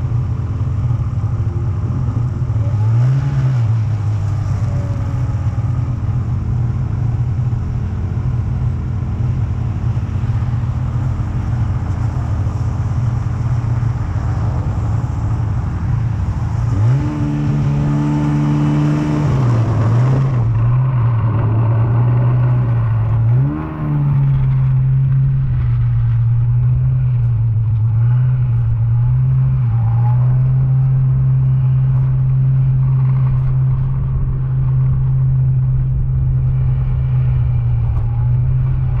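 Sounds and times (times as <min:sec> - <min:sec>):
snowmobile engine running: 0:00.0 - 0:39.0.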